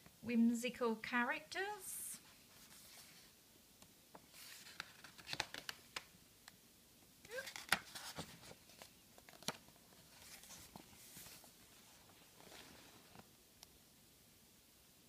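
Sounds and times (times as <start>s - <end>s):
paper pages turning: 4.1s - 6.1s, 7.3s - 13.3s.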